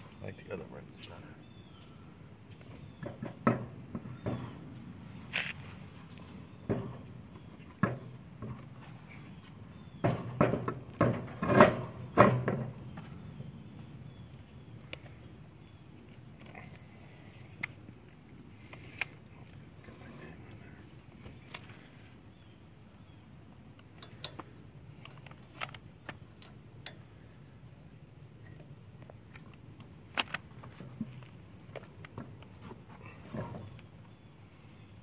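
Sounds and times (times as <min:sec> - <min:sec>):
wheel rim knocking against metal: 0:09.9 - 0:13.0.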